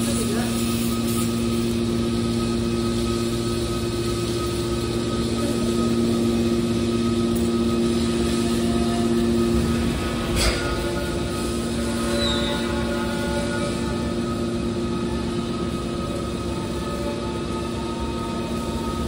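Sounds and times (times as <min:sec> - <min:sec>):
faint high whine: 0:00.0 - 0:19.0.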